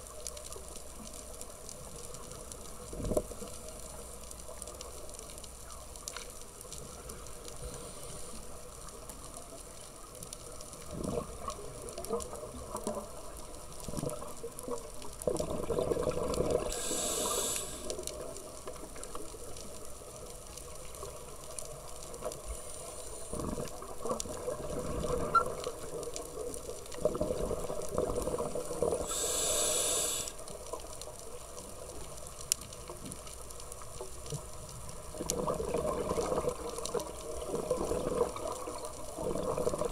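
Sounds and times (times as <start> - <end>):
scuba regulator inhalation hiss: 7.6 - 8.6, 16.6 - 18.0, 22.5 - 23.5, 28.8 - 30.4
gurgling exhaled bubbles: 10.8 - 13.0, 15.2 - 18.0, 23.2 - 30.3, 35.0 - 39.9.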